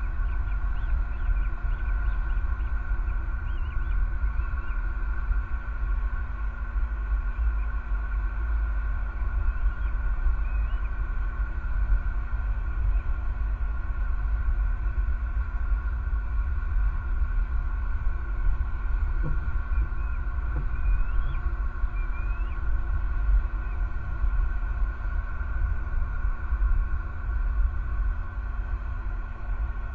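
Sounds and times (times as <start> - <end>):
continuous drone of steady tones: 0.0 - 29.9
steady low rumble: 0.0 - 29.9
faint low knocks: 18.7 - 21.4.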